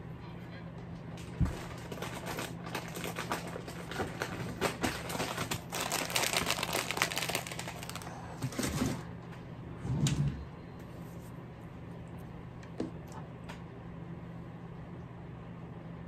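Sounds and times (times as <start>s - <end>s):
plastic packet crinkling: 1.5s - 9.0s.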